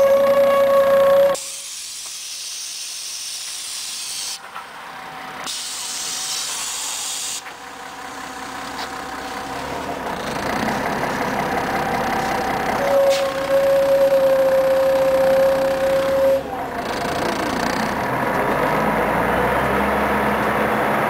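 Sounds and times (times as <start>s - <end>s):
low bus running noise: 0.0s - 21.0s
bus air brakes hissing: 1.4s - 4.4s, 5.4s - 7.5s.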